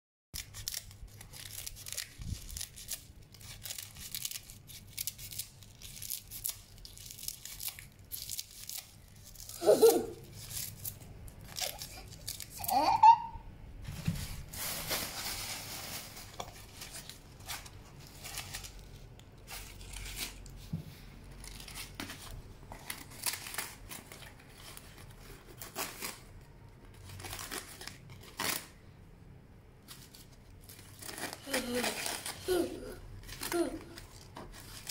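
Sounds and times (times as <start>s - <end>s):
dry leaves crackling and rustling: 0.4s - 12.9s, 13.9s - 20.4s.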